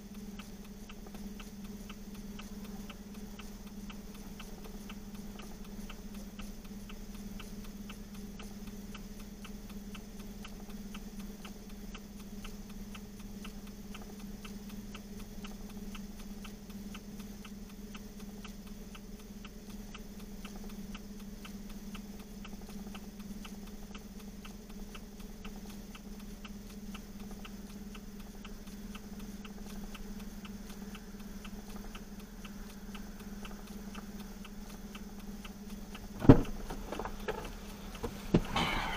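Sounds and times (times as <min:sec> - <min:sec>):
engine idling hum: 0:28.2 - 0:38.9.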